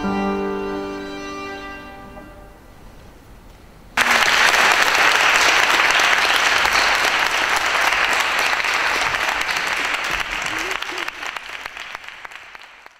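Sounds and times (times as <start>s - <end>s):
audience applause: 4.0s - 12.9s.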